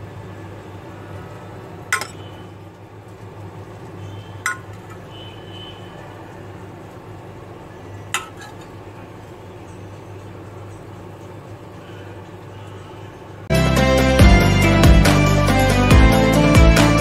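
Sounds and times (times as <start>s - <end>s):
spoon clinking on glass: 1.9s - 2.2s, 4.5s - 5.0s.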